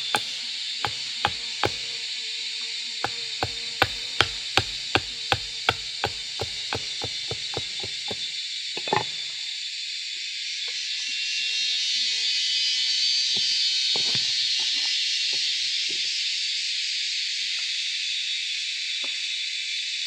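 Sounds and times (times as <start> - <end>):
hatchet chopping wood: 0.0 - 2.1, 3.0 - 9.0.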